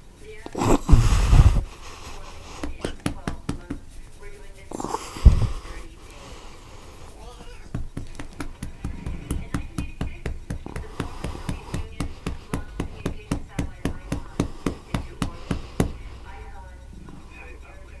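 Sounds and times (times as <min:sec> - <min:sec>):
rapid even knocking: 0:00.9 - 0:03.9, 0:07.4 - 0:16.1.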